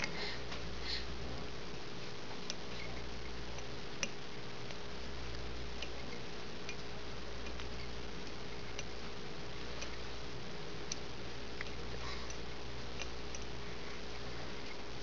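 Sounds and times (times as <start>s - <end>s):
low hum and hiss: 0.0s - 15.0s
faint small ticks: 10.8s - 13.5s.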